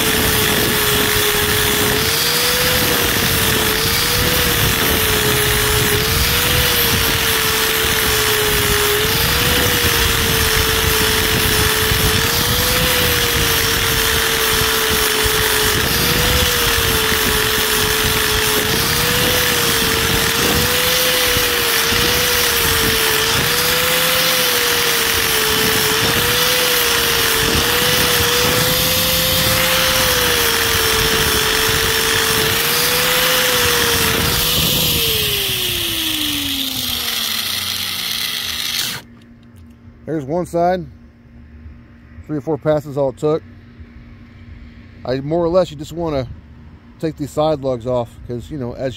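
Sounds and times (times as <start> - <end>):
angle grinder sanding rubber: 0.0 - 39.1.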